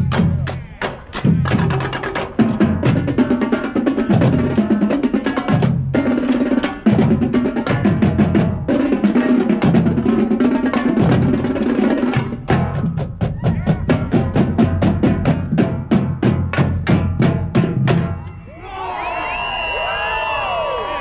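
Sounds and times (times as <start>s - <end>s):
snare and tenor drum rolls: 0.0s - 18.2s
bass drums pounding: 12.1s - 18.2s.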